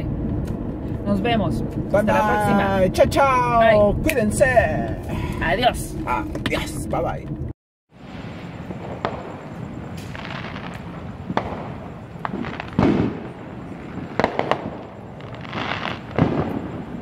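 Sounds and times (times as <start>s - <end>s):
fireworks bangs: 8.0s - 17.0s
fireworks crackling: 8.0s - 17.0s.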